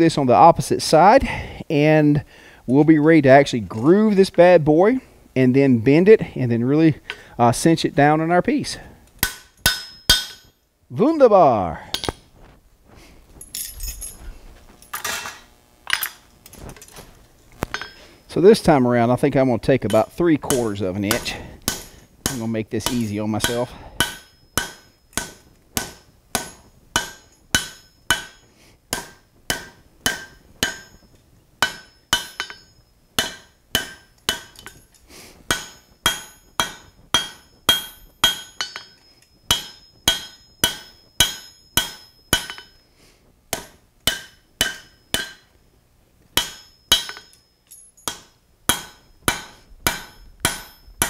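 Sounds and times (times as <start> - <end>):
hammer striking steel on anvil: 9.2 - 10.6, 11.9 - 12.2, 17.7 - 18.0, 19.8 - 42.9, 43.5 - 45.6, 46.4 - 51.0.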